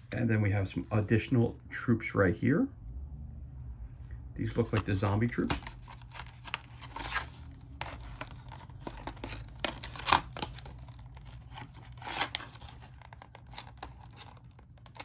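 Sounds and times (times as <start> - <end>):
package rustling and scraping: 4.6 - 15.0
packaging tearing: 4.7 - 15.0.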